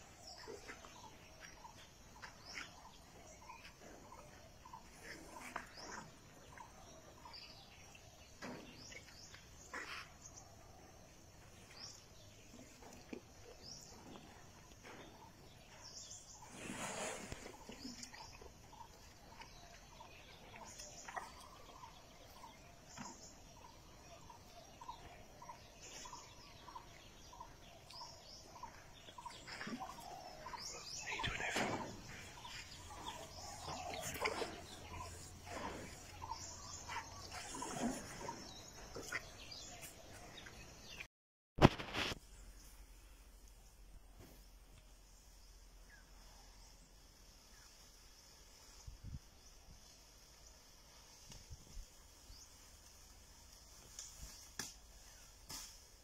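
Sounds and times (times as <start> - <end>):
faint birdsong: 0.0 - 41.1, 42.0 - 56.0
brief rustle: 41.6 - 42.3.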